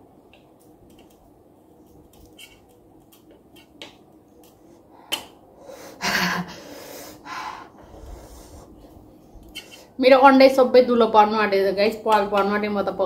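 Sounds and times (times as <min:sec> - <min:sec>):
soft breaths: 0:04.5 - 0:10.0
person laughing breathily: 0:05.8 - 0:07.6.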